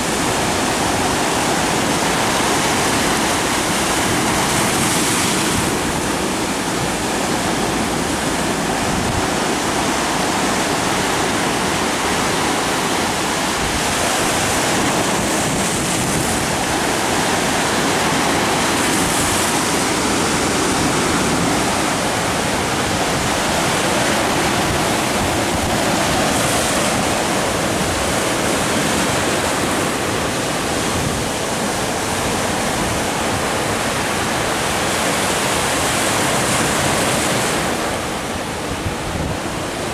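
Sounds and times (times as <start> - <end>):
surf breaking on rocky shore: 0.0 - 39.9.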